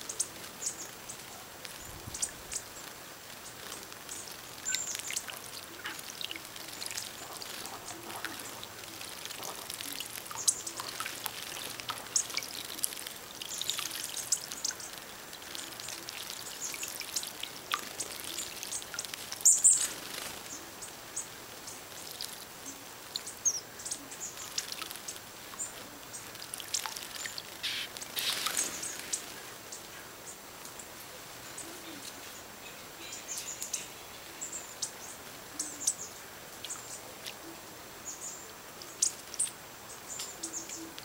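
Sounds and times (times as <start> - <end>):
small birds chirping: 0.0 - 41.0
wings fluttering: 1.6 - 20.7, 26.0 - 29.6
water splashing: 3.6 - 20.6, 24.4 - 29.6.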